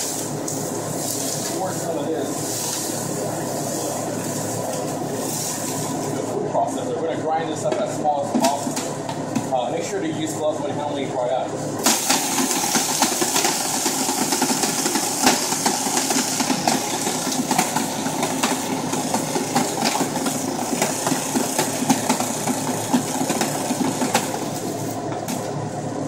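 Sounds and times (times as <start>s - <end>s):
food processor motor drone: 11.8s - 26.0s.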